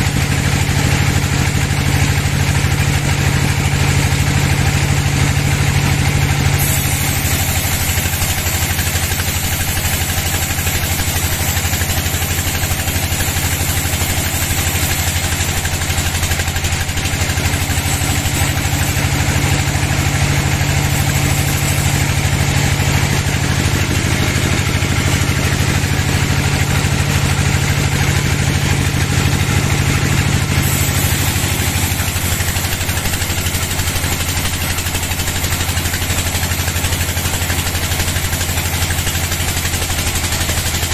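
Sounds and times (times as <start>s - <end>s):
bandsaw sawing through log: 6.4s - 40.9s
hiss of cutting: 6.5s - 26.1s, 30.5s - 40.9s.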